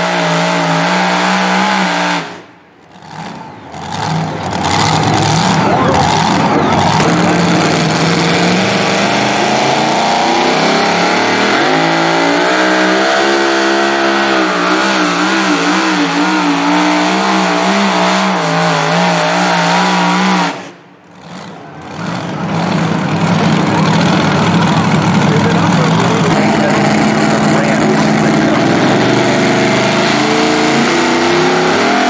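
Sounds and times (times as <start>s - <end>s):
supercharged engine at full throttle: 0.0s - 32.0s.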